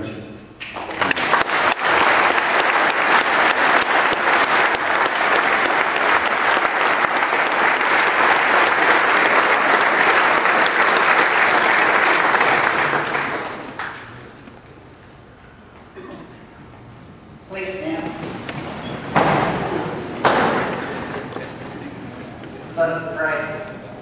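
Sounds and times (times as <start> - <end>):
congregation clapping: 0.6 - 14.5, 19.2 - 22.6.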